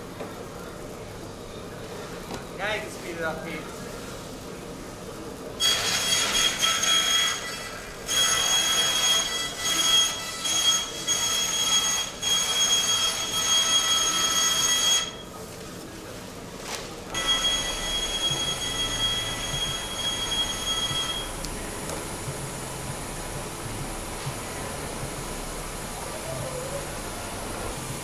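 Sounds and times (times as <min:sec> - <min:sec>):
high-pitched mechanical whine: 0:05.2 - 0:15.3, 0:17.1 - 0:28.0.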